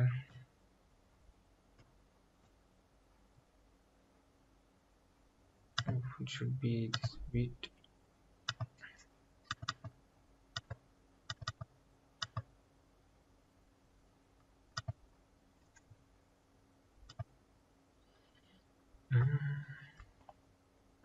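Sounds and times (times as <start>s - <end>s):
faint steady hum: 0.0s - 21.0s
computer mouse clicking: 5.8s - 6.0s, 6.9s - 7.2s, 8.5s - 8.8s, 9.5s - 12.5s, 14.7s - 15.0s, 17.1s - 17.3s.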